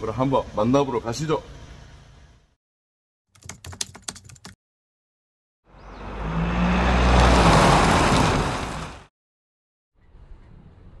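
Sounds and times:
car driving past: 5.7s - 9.1s.

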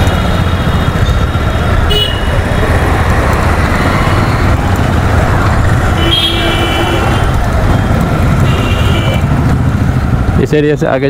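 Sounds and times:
motorcycle engine and road rumble: 0.0s - 11.0s
vehicle horn: 1.9s - 2.4s, 5.9s - 7.4s, 8.3s - 9.5s.

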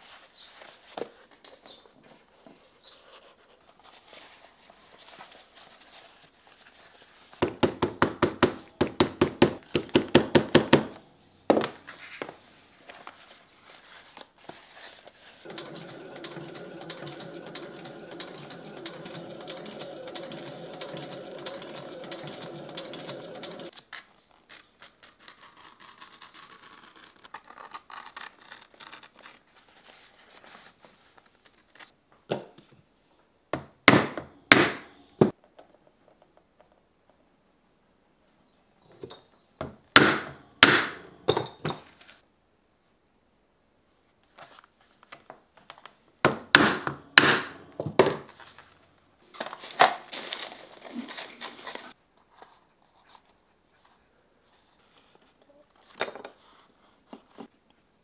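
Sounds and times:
sewing machine stitching: 15.4s - 23.7s.

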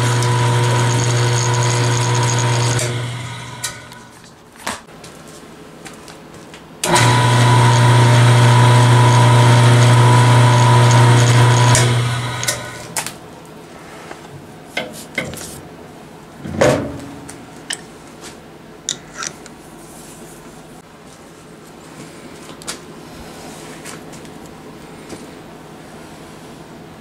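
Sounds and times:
electric motor humming: 0.0s - 4.1s, 6.8s - 13.0s.

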